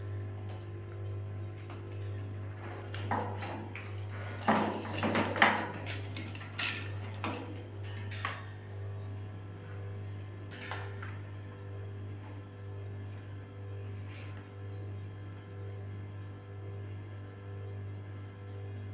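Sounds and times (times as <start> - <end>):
wire birdcage rattling: 0.0 - 9.2, 9.8 - 11.3
low electrical hum: 0.0 - 18.9.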